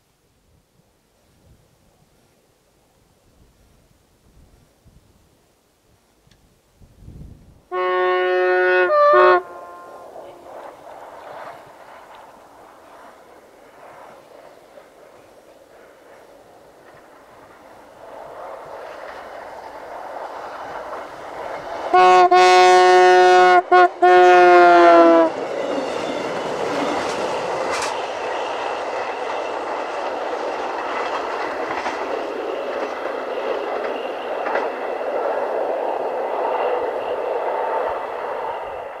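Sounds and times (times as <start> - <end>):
train wheels rumbling on rails: 6.3 - 39.0
train horn blasts: 7.7 - 10.5, 21.9 - 26.1
clicks over rail joints: 27.0 - 28.0.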